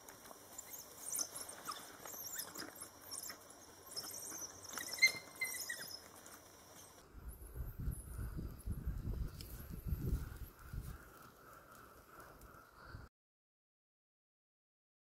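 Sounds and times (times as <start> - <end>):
wild dogs twittering calls: 0.4 - 7.0.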